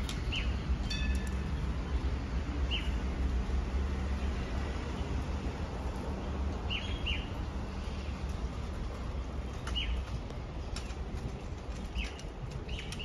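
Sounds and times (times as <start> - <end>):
light rail vehicle rumbling: 0.0 - 13.0
bird chirps: 0.2 - 1.3.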